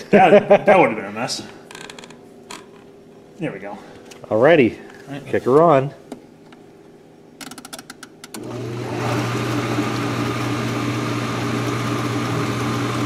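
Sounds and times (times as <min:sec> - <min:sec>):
dishwasher motor humming: 0:08.2 - 0:13.0.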